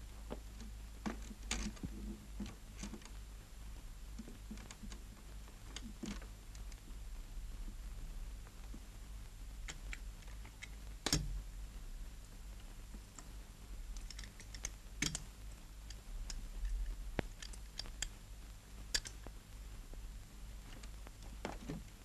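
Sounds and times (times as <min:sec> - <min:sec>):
steady low hum: 0:00.0 - 0:22.0
small objects clicking and knocking: 0:00.3 - 0:03.2, 0:13.9 - 0:18.2, 0:18.9 - 0:19.3.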